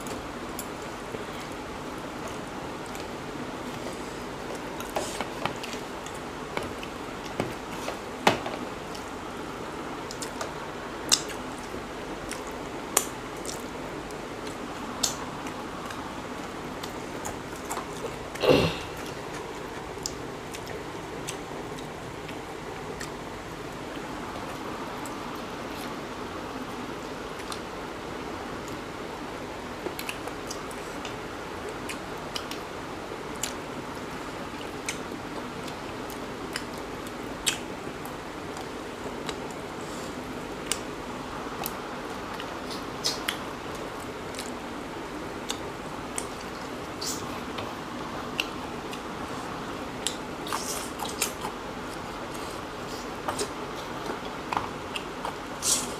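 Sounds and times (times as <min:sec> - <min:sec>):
background hiss: 0:00.0 - 0:55.9
chewing and wet mouth sounds: 0:10.0 - 0:26.0, 0:27.0 - 0:27.7, 0:29.8 - 0:40.9, 0:41.5 - 0:55.9.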